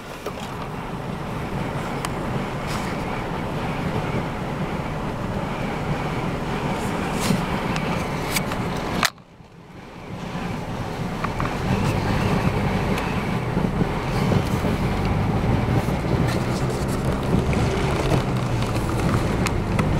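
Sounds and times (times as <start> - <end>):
vehicle engine hum: 0.0 - 19.9
wind and road noise: 0.0 - 19.9.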